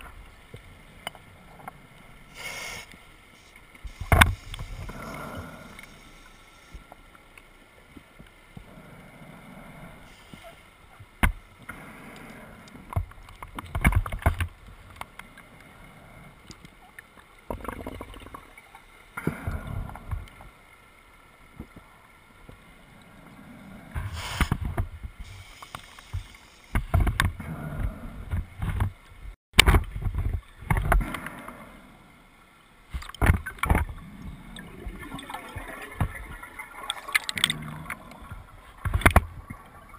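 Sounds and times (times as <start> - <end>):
underwater exhaled bubbles gurgling: 3.9 - 6.3, 17.5 - 20.4, 33.4 - 39.9.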